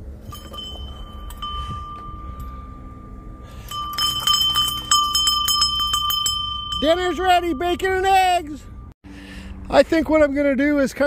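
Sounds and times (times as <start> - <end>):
dinner bell clanging: 0.2 - 8.9.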